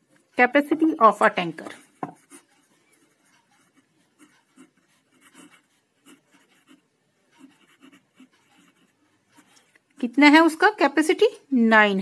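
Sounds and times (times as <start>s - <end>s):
pen scratching on paper: 1.6s - 10.1s.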